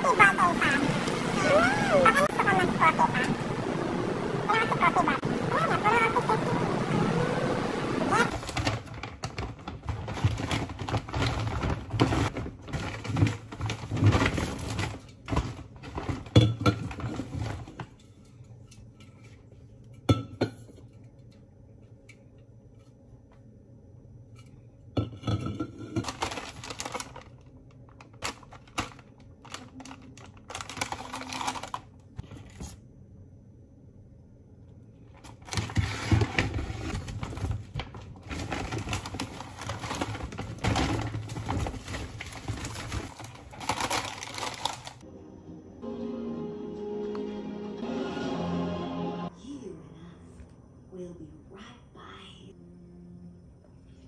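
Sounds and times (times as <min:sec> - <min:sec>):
bag and packaging rustling: 0:08.1 - 0:18.0, 0:26.0 - 0:32.8, 0:35.1 - 0:45.0
cans and cartons clinking down: 0:08.3 - 0:18.0, 0:35.3 - 0:45.0.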